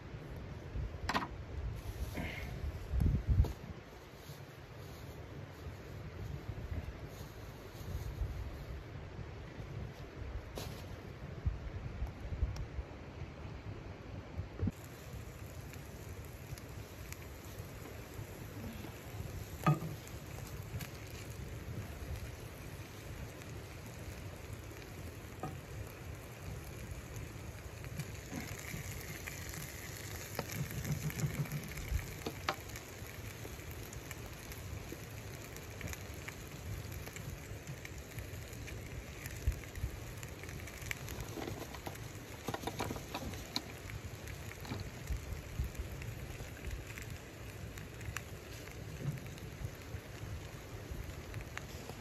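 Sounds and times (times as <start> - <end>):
sharp frying pops: 14.6 - 52.0
chicken sizzling in a skillet: 14.7 - 52.0.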